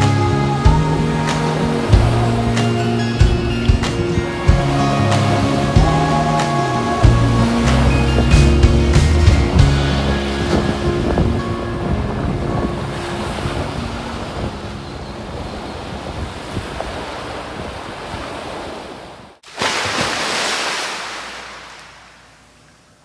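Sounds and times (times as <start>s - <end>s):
music: 0.0s - 15.0s
wind buffeting microphone: 0.8s - 19.4s
surf washing onto beach: 15.9s - 22.7s
burst of rushing noise: 19.5s - 22.6s.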